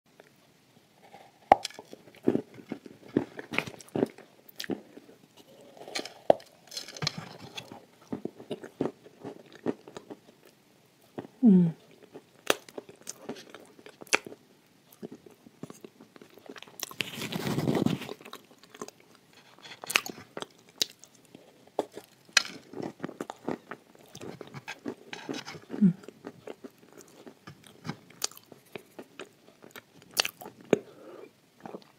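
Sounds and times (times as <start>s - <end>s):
crunching and chewing: 1.0s - 31.9s
person humming: 11.4s - 11.8s, 25.8s - 26.0s.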